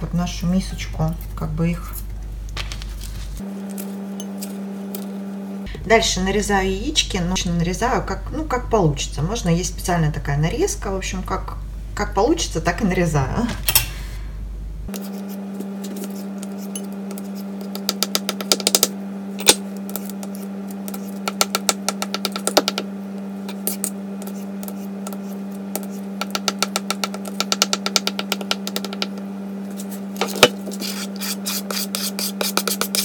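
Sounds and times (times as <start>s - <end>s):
steady low hum: 0.0s - 33.0s
knife chopping on cutting board: 30.2s - 33.0s.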